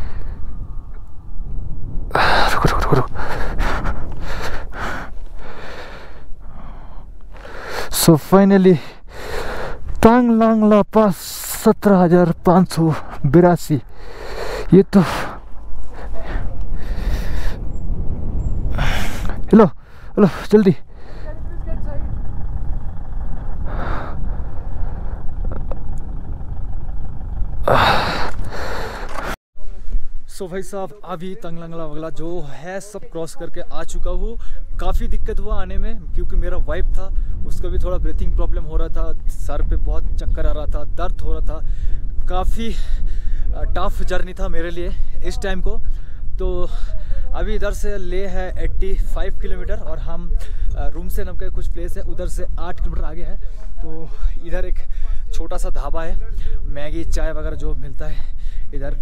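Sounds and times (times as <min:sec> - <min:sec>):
wind rumble on microphone: 0:00.0 - 0:07.8, 0:12.1 - 0:32.4, 0:33.4 - 0:59.0
rapid heavy breathing: 0:02.1 - 0:08.1, 0:08.8 - 0:10.0, 0:12.8 - 0:17.7, 0:18.7 - 0:21.6, 0:23.0 - 0:25.4, 0:27.6 - 0:29.4, 0:41.6 - 0:43.6, 0:53.4 - 0:55.3, 0:58.2 - 0:58.7.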